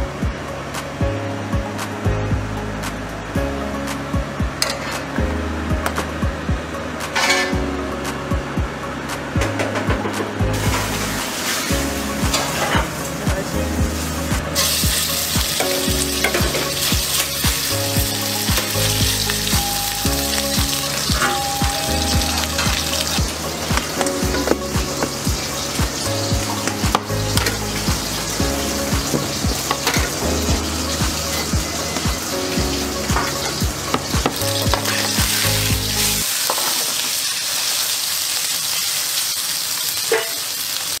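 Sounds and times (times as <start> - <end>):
background music with a beat: 0.0 - 36.3
meat sizzling in hot oil: 10.6 - 12.6, 14.6 - 41.0.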